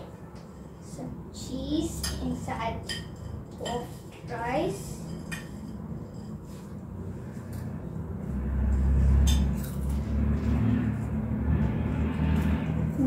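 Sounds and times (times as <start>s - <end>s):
low rumble: 5.7s - 13.0s.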